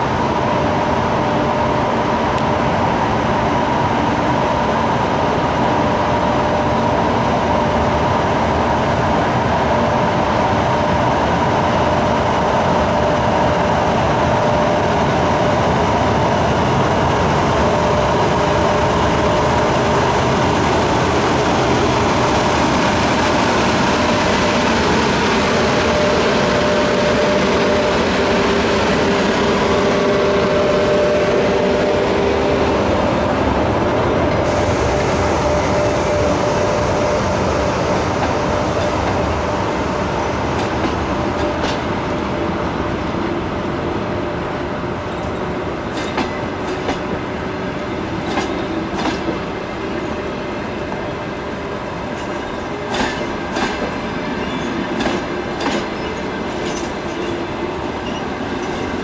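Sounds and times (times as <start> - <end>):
electric locomotive departing: 0.0 - 59.0
train coaches rolling past: 0.0 - 59.0.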